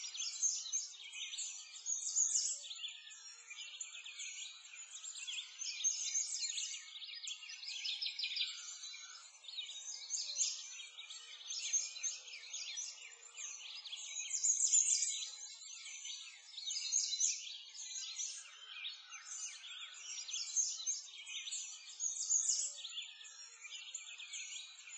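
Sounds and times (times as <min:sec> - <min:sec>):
small birds chirping: 0:00.0 - 0:24.9.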